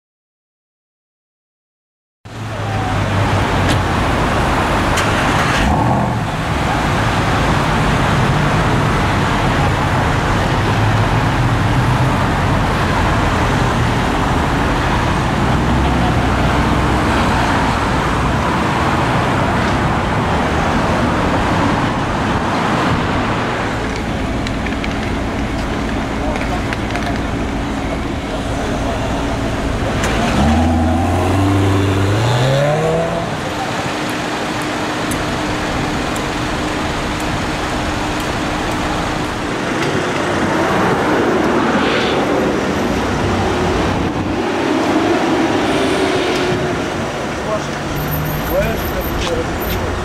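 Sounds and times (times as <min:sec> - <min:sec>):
street traffic noise: 0:02.3 - 0:50.0
low engine rumble: 0:23.0 - 0:50.0.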